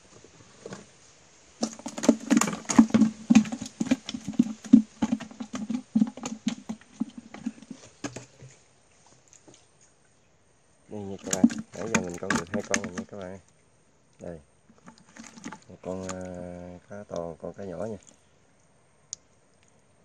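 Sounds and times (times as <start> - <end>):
fish flapping and slapping: 1.6 - 8.5, 11.0 - 13.4, 14.7 - 16.4.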